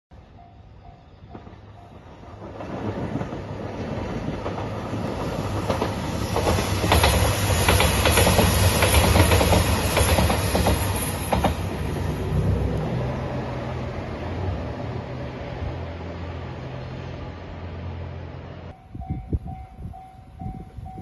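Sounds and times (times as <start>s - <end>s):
wheels clicking over rail joints: 1.3s - 13.0s
diesel train engines humming: 3.5s - 21.0s.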